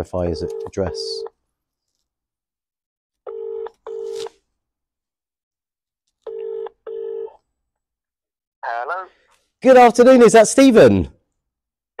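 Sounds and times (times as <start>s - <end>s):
telephone ringing tone: 3.3s - 4.3s, 6.3s - 7.4s.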